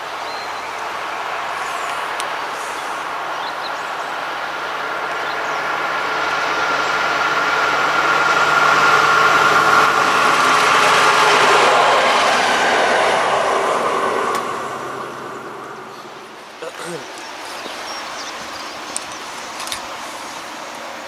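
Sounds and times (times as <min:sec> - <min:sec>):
electric freight train approaching: 0:00.0 - 0:16.6
high whine: 0:00.0 - 0:20.4.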